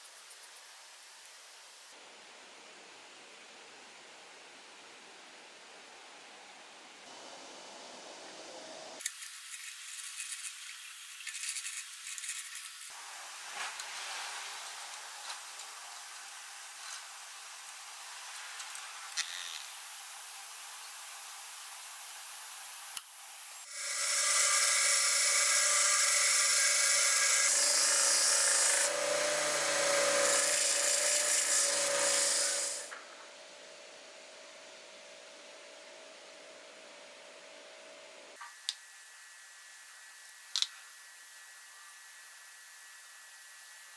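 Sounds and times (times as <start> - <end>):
faint hiss: 7.1 - 23.7
belt sander grinding metal: 23.7 - 32.9.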